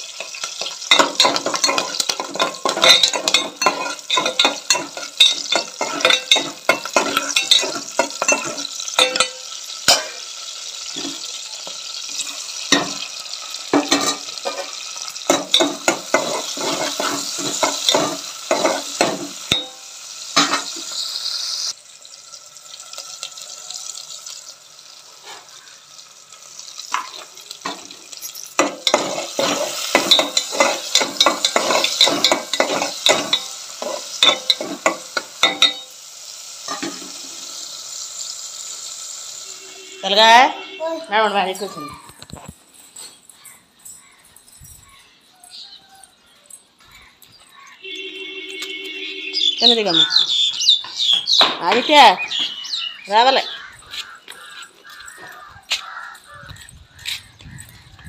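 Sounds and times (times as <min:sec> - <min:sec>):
vegetables sizzling in hot oil: 0:00.0 - 0:42.4
metal spatula scraping pot: 0:00.1 - 0:10.3, 0:12.1 - 0:19.8, 0:20.4 - 0:21.0, 0:26.8 - 0:35.9.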